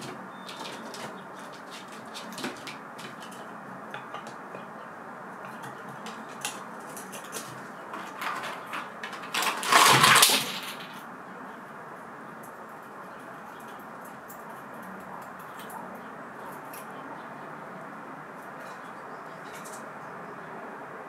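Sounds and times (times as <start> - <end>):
loud scrabbling clatter: 0.0 - 4.7, 5.4 - 11.0
squirrel claws clicking and scratching: 0.0 - 11.0, 12.4 - 17.0.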